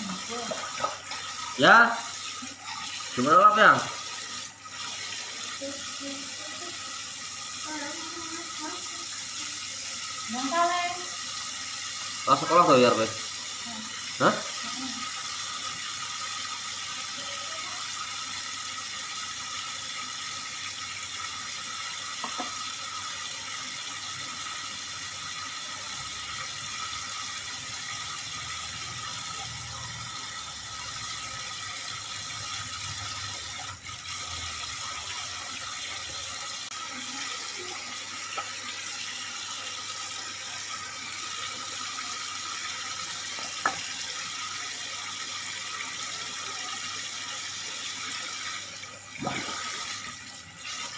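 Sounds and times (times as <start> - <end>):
tap running into sink: 0.4 - 1.5, 22.1 - 22.7, 38.2 - 38.7, 43.2 - 43.9.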